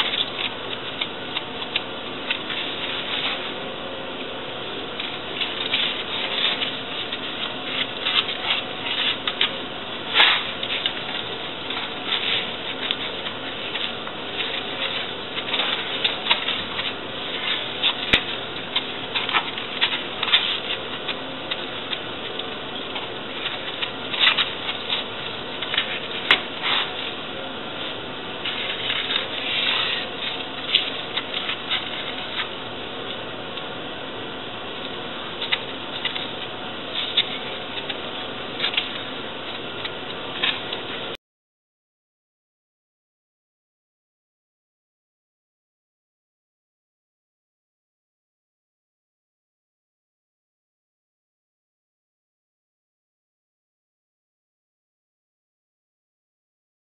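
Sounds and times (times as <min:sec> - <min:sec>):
steady hiss: 0:00.0 - 0:41.2.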